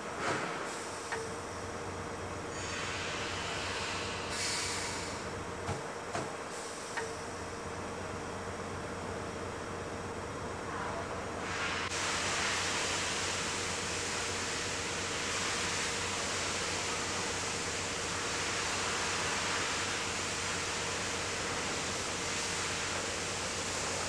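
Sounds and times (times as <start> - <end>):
steady valve hiss: 2.5 - 5.4, 11.4 - 24.0.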